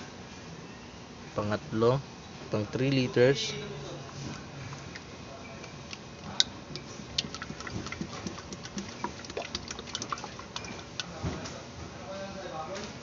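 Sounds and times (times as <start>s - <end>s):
oil glugging from plastic bottle: 6.7s - 11.1s.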